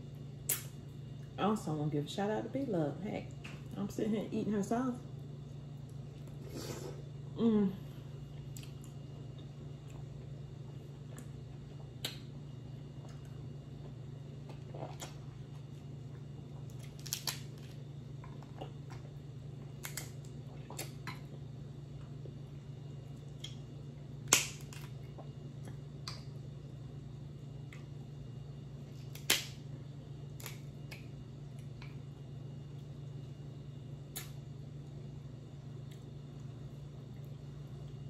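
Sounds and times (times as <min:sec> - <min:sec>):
steady low hum: 0:00.0 - 0:38.0
crab shells cracking: 0:16.7 - 0:17.8, 0:19.8 - 0:20.3, 0:24.2 - 0:25.0, 0:29.0 - 0:29.6, 0:30.4 - 0:31.1.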